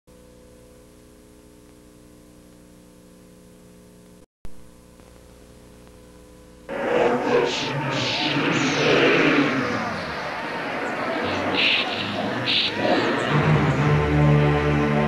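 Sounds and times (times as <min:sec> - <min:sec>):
electrical mains hum with hiss: 0:00.1 - 0:08.1
loud crowd noise: 0:06.7 - 0:15.0.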